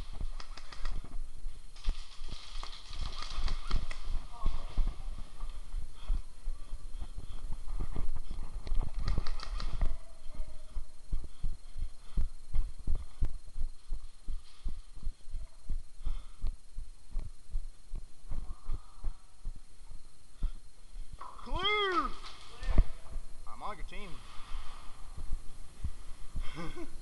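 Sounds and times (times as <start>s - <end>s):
sharp clicks: 0.2s - 1.2s, 2.4s - 4.1s, 8.6s - 10.0s.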